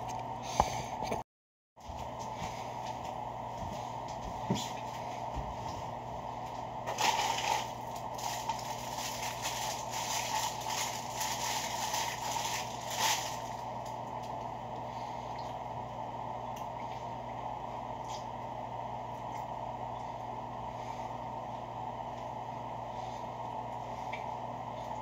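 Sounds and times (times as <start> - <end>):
paper bag and wrapper rustling: 6.9 - 14.0.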